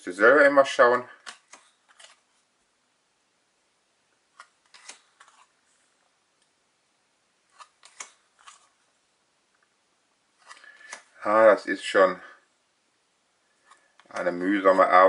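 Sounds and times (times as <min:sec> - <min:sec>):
trading cards flipping: 0:01.1 - 0:02.5, 0:04.3 - 0:05.8, 0:07.5 - 0:08.8, 0:10.4 - 0:11.2, 0:13.6 - 0:14.4.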